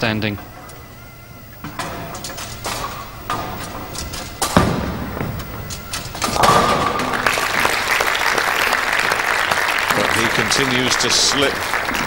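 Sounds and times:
bowling ball rolling: 0.0 - 12.0
bowling pin clattering: 1.6 - 7.8
crowd applauding: 6.4 - 12.0.

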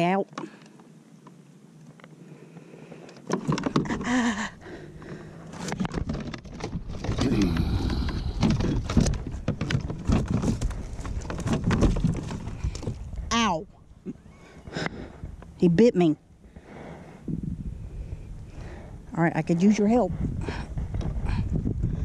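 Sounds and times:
net knocking against plastic hull: 5.7 - 13.0.

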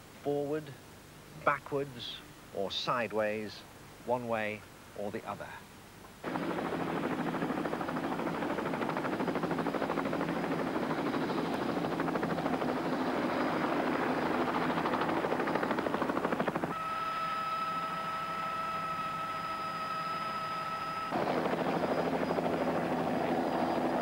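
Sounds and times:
helicopter rotor chopping: 6.2 - 16.8, 21.1 - 24.0
helicopter engine whine: 6.2 - 24.0.

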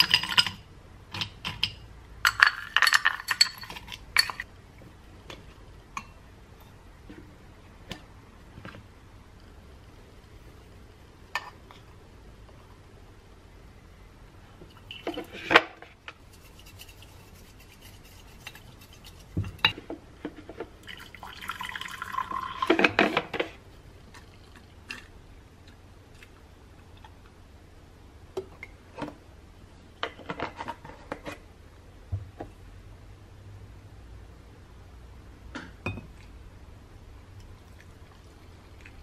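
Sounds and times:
utensils clinking on glass and metal: 0.0 - 4.4
liquid pouring: 20.8 - 22.9.

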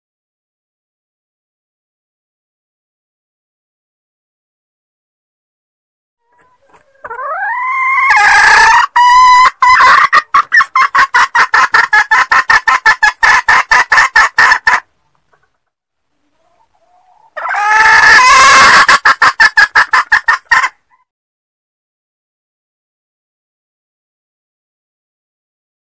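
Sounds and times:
hen calling and clucking: 6.2 - 21.1.

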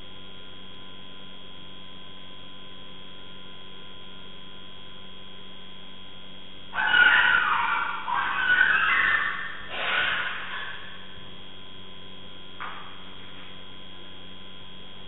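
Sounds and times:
electrical hum: 0.0 - 15.0
whining tones: 6.7 - 11.5
dog yelping in distress: 6.8 - 10.9.

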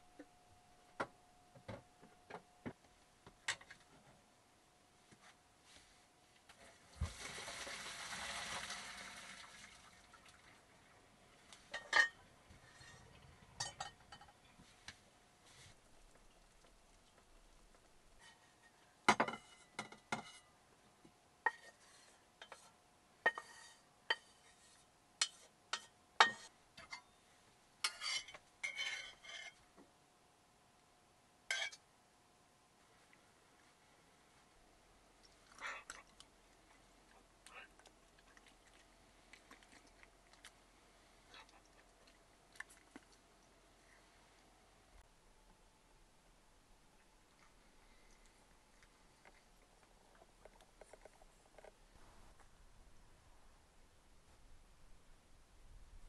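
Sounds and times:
spoon clinking on pan and bowl: 13.6 - 14.4.

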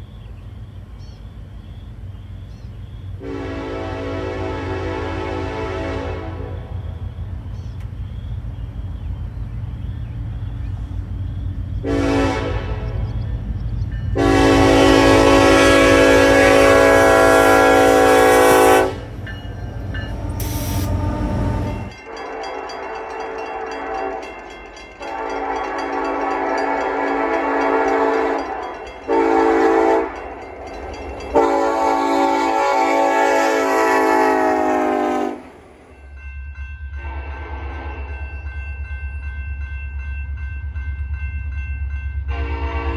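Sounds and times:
diesel locomotive rumble: 0.0 - 42.9
locomotive air horn blasts: 3.2 - 6.8, 11.8 - 13.1, 14.1 - 19.2, 20.1 - 24.3, 25.0 - 30.2, 31.3 - 35.6, 37.0 - 38.2, 42.3 - 42.9.

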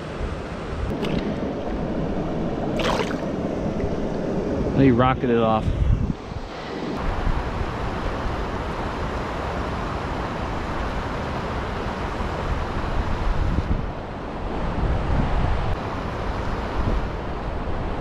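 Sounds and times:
wind buffeting microphone: 0.7 - 8.7, 12.4 - 15.9.

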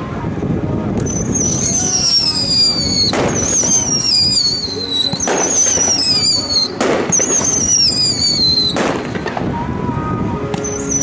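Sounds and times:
firework bangs: 0.9 - 11.0
falling firework whistle: 1.0 - 9.4.

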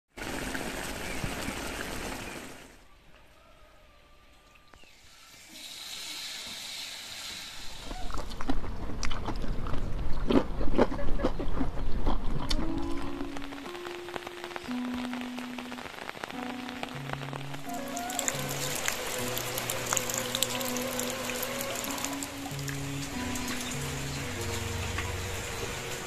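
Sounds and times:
hot oil sizzling: 5.0 - 8.1, 13.1 - 26.0
crunching of crisp crackers: 7.8 - 14.1.

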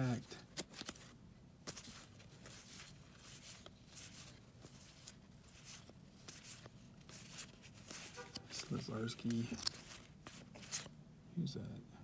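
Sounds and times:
cards ticking together: 0.0 - 1.1
low steady hum: 0.0 - 12.0
cards sliding off a stack: 0.5 - 10.9.

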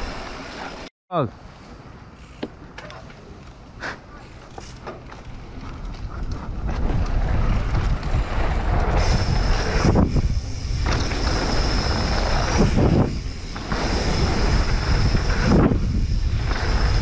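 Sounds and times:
tyres rolling over dirt: 3.0 - 17.0
wind buffeting microphone: 5.3 - 17.0.

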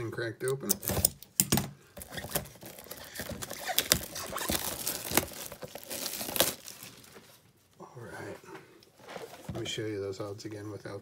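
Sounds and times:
plastic shrink wrap tearing: 2.0 - 7.4.

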